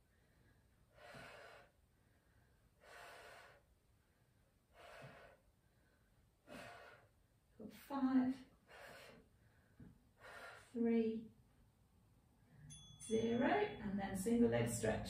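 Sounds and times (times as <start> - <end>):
woman breathing: 0.0 - 7.3, 8.5 - 10.8.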